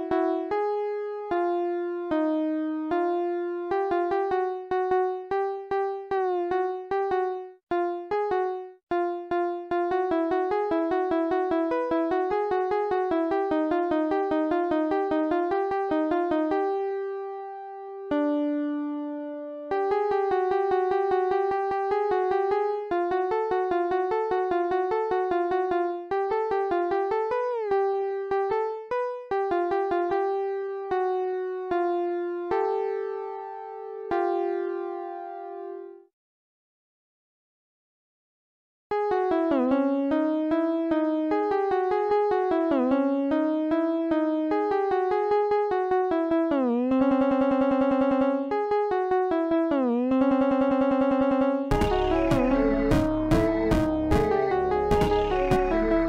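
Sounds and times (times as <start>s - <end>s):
electric piano runs: 50.2s - 56.0s.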